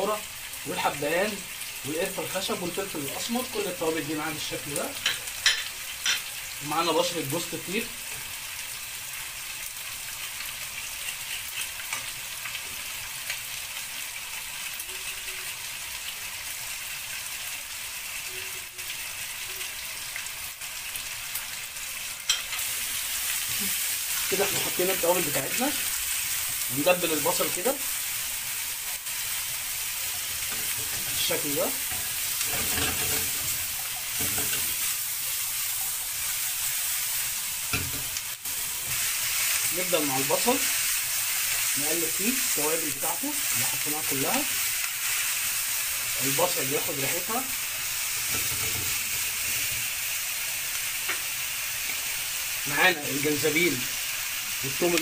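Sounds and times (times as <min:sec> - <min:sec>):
onions sizzling in a pan: 0:00.0 - 0:55.0
spatula stirring in pan: 0:29.2 - 0:36.8.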